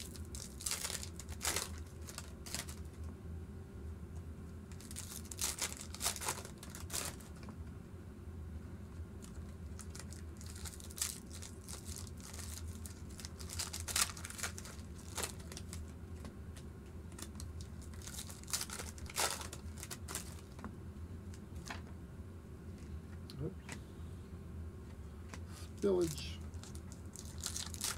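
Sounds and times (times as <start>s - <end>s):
foil wrappers tearing and crinkling: 0.0s - 2.9s, 4.7s - 7.4s, 9.2s - 16.0s, 17.1s - 20.6s, 26.0s - 27.9s.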